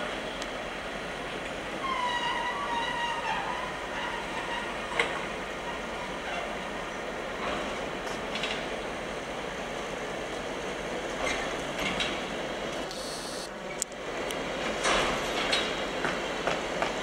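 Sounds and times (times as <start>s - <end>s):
wheels rumbling on rail: 0.0s - 17.0s
clicks of wheels on rail joints: 2.2s - 5.3s, 7.4s - 8.8s, 11.1s - 13.0s, 13.6s - 17.0s.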